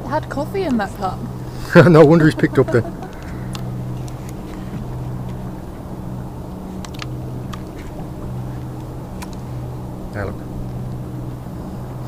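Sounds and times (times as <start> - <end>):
boat engine idling: 0.0 - 12.0.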